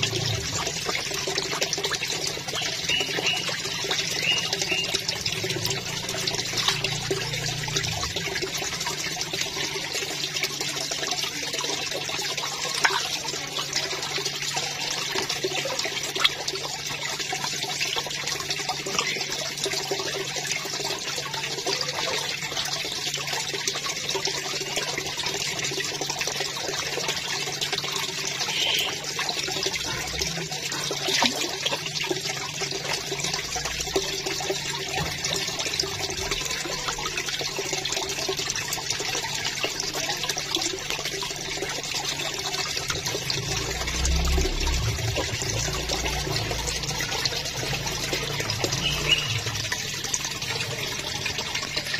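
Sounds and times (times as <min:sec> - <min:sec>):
water rushing in a pond: 0:00.0 - 0:51.9
fish splashing: 0:12.5 - 0:13.9, 0:28.2 - 0:32.3.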